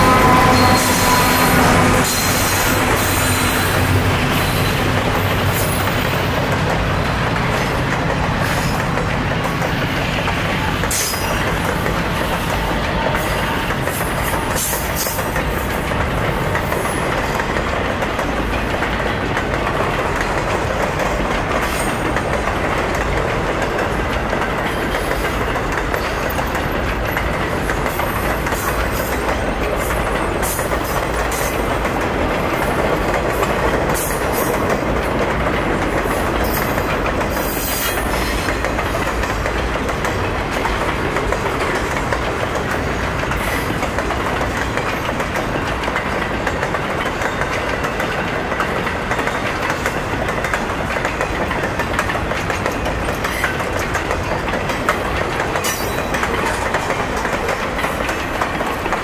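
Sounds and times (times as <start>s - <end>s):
freight train wheels rumbling on rail: 0.0s - 59.0s.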